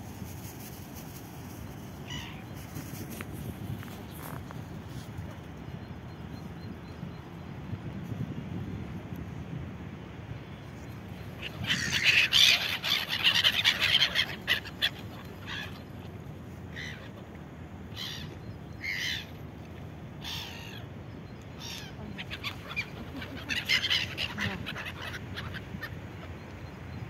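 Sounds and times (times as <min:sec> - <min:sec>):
gulls squawking: 0:11.4 - 0:16.1, 0:17.9 - 0:19.4, 0:21.6 - 0:26.9.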